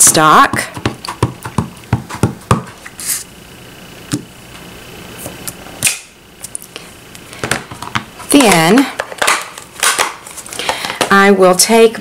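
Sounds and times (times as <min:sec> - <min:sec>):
stamp knocking on cutting mat: 0:00.5 - 0:02.7.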